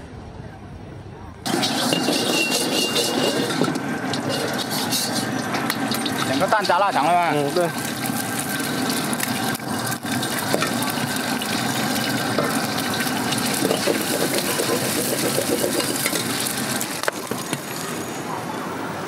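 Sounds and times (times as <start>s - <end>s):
metal ladle scraping a pan: 1.5s - 6.3s, 12.6s - 16.8s
eggs sizzling in hot oil: 1.5s - 18.0s.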